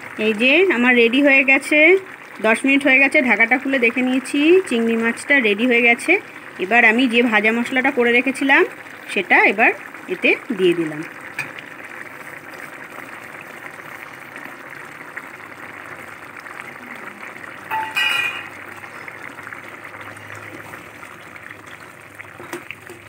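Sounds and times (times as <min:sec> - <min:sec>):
curry bubbling in a pan: 0:00.0 - 0:23.0.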